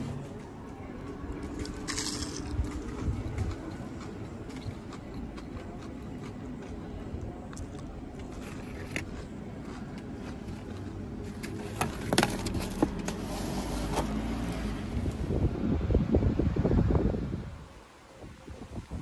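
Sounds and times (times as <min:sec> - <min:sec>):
road vehicle rumble passing: 0:09.3 - 0:18.7.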